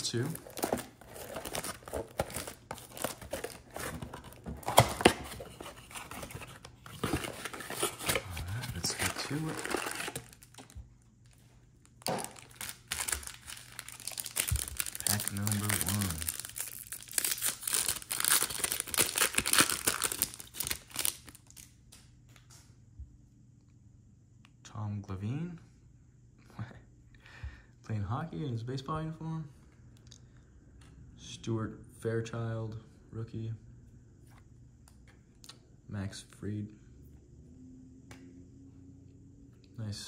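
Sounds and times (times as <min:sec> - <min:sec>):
plastic and cardboard crinkling: 0:00.0 - 0:21.6.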